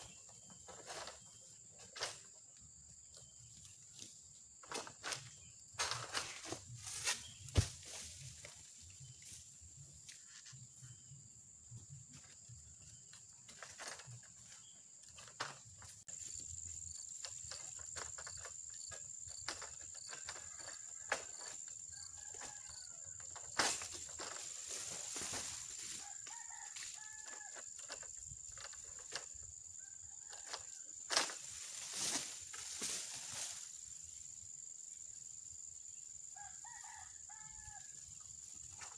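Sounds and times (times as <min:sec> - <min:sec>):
rooster crowing: 0:21.9 - 0:23.2, 0:26.0 - 0:27.6, 0:36.4 - 0:38.0.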